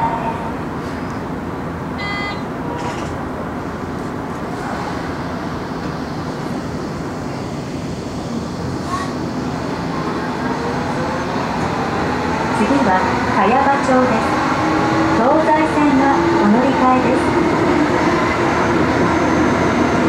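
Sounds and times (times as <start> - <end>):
subway train rumbling in tunnel: 0.0 - 20.0
brief high tone: 2.0 - 2.5.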